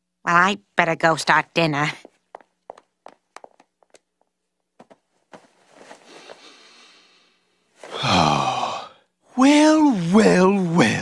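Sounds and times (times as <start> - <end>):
cartoon footsteps: 1.8 - 5.6.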